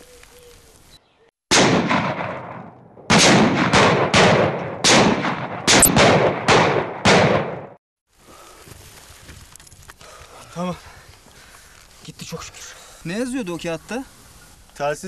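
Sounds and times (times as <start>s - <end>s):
rifle shots echoing: 1.5s - 7.8s.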